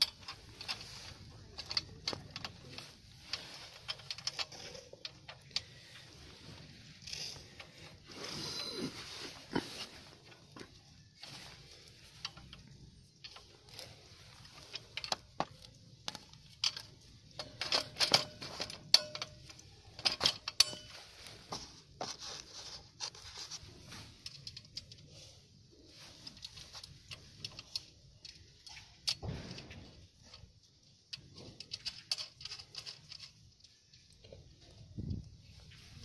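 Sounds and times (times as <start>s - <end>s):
metal parts clicking and scraping: 0.0s - 36.0s
cloth brushing microphone: 7.7s - 10.0s.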